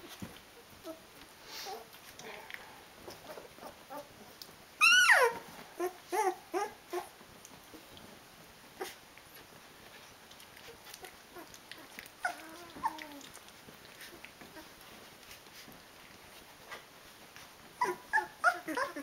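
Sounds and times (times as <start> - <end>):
puppies whining and crying: 3.0 - 7.2, 10.6 - 14.8, 17.8 - 19.0.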